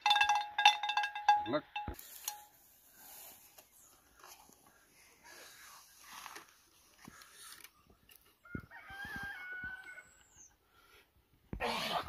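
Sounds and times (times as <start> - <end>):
rooster crowing: 8.4 - 10.2.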